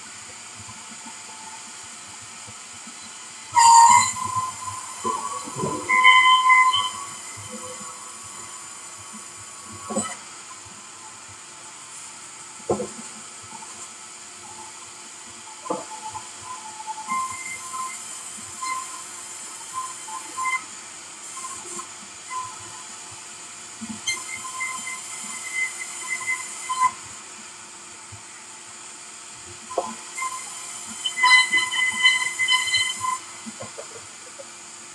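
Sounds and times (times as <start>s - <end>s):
band saw humming: 3.2s - 10.3s.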